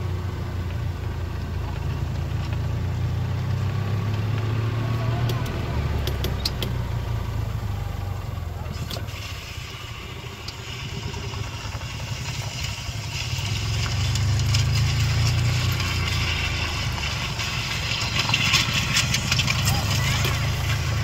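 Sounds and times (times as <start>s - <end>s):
utility vehicle engine hum: 0.0s - 21.0s
branches scraping on ground: 10.8s - 21.0s.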